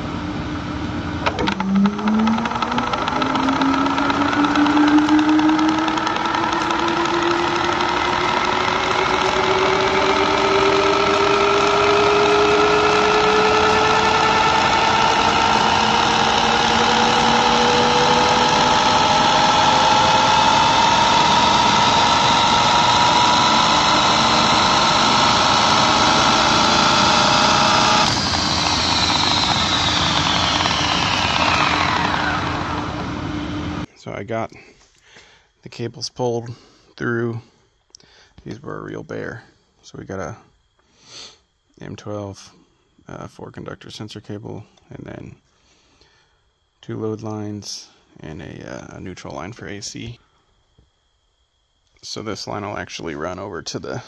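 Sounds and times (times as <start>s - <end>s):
lathe spinning up whine: 0.0s - 33.9s.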